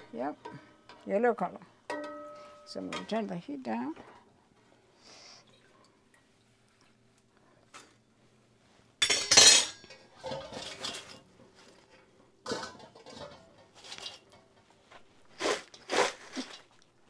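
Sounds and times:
metal kitchenware clattering: 0:01.9 - 0:03.4, 0:09.0 - 0:14.6.

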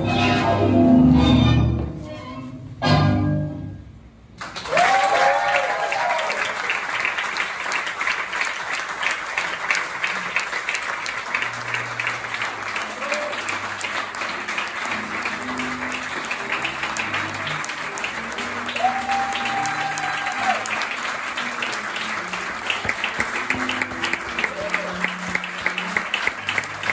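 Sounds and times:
tango music: 0:00.0 - 0:04.0, 0:09.6 - 0:26.9
audience applauding: 0:04.4 - 0:26.9
audience cheering: 0:04.5 - 0:07.1, 0:12.7 - 0:13.7, 0:18.4 - 0:21.2, 0:23.6 - 0:25.9.

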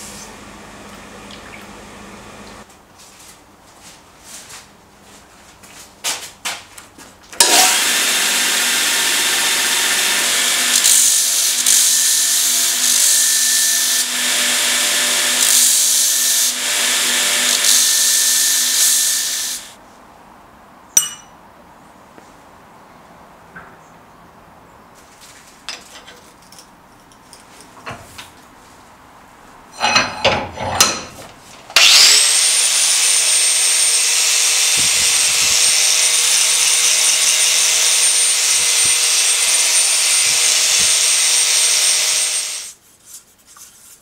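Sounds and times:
belt grinder grinding metal: 0:07.4 - 0:19.8, 0:31.8 - 0:42.8.

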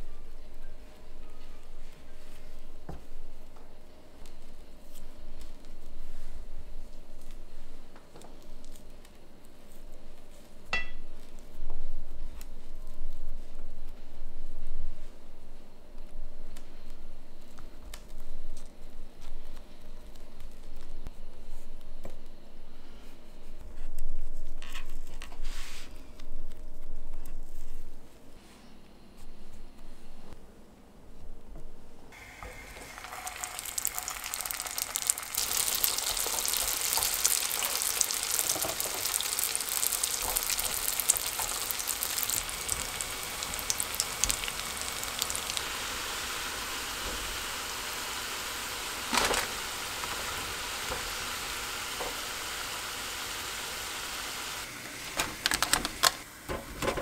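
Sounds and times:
food sizzling in oil: 0:32.2 - 0:54.8.

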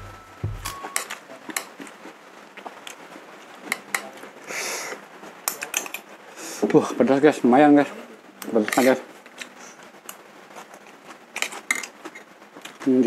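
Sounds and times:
background music: 0:00.0 - 0:01.2.

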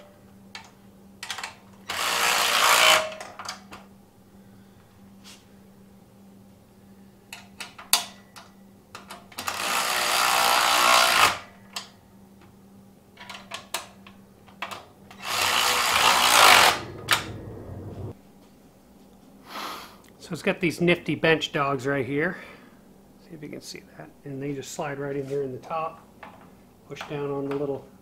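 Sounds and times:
cordless drill driving fasteners: 0:15.2 - 0:17.0.

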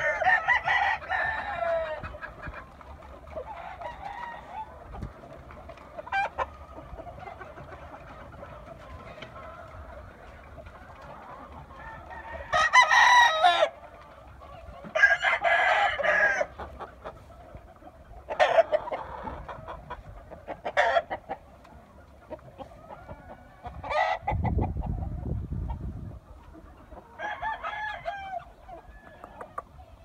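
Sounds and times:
roosters crowing: 0:00.0 - 0:02.4, 0:03.2 - 0:05.1, 0:10.7 - 0:16.9, 0:20.6 - 0:21.2, 0:22.7 - 0:24.4, 0:27.0 - 0:29.6.

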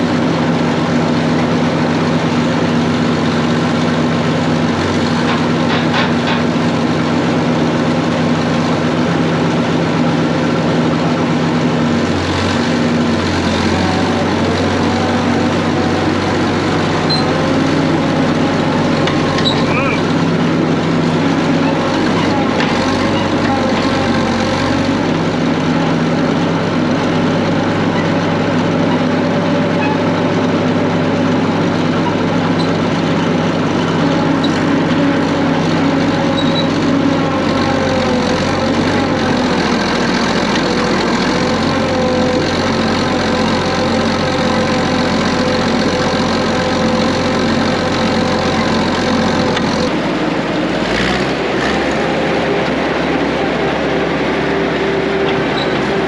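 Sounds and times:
bulldozer diesel engine running: 0:00.0 - 0:56.0.

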